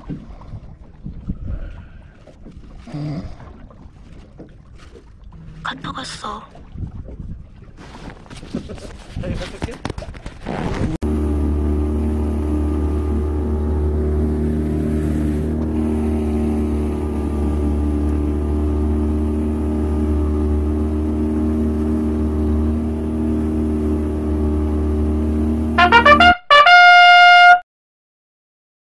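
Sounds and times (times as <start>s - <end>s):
outboard motor humming: 0.0s - 8.6s, 10.5s - 27.5s
brass fanfare: 25.8s - 27.6s.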